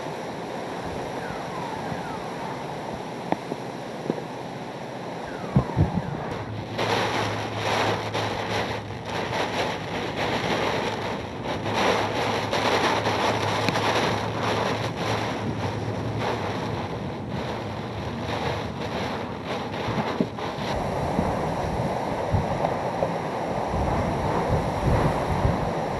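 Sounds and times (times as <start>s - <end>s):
driving rain: 0.0s - 25.9s
gusting wind buffeting microphone: 0.0s - 25.9s.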